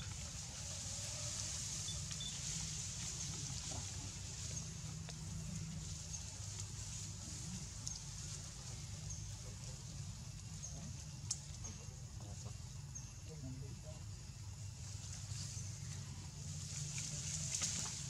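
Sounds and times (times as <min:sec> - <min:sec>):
faint sharp clicks: 0:11.2 - 0:11.6.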